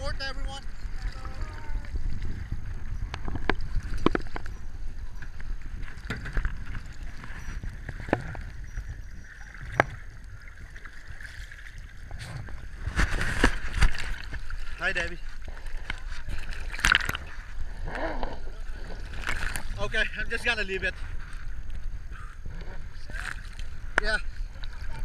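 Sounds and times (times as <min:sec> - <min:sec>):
low wind rumble on microphone: 0:00.0 - 0:25.0
sea waves slapping against camera: 0:09.6 - 0:21.8.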